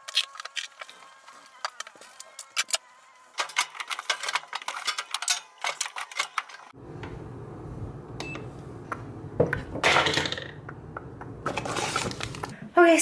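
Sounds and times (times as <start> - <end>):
household clicks and clatter: 3.4 - 6.7
electric kettle humming: 6.8 - 9.8
kettle control panel beep: 8.2 - 8.5.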